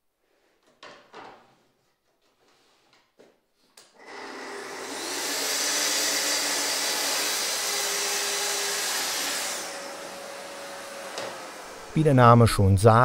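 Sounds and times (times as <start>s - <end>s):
dust extractor running: 4.0s - 12.0s
circular saw cutting wood: 4.0s - 12.2s.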